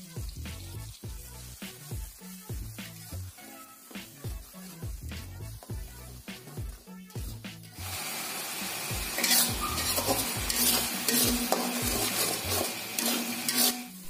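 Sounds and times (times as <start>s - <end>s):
paste sizzling in a wok: 0.0s - 14.0s
metal spatula scraping a pan: 0.8s - 6.5s, 9.1s - 14.0s.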